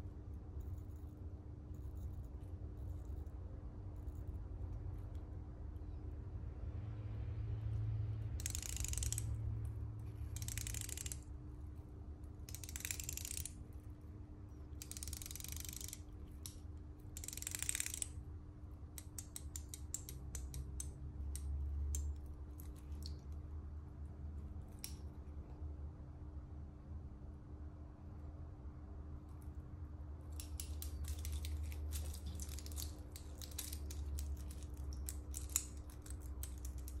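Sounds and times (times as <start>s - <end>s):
watch bezel ratcheting clicks: 8.4s - 11.3s, 12.4s - 13.9s, 14.7s - 18.2s, 19.0s - 23.3s, 30.3s - 37.0s.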